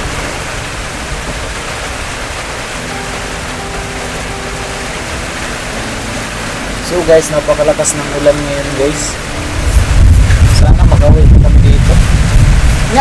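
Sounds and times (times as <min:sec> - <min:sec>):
heavy rain on roof: 0:00.0 - 0:13.0.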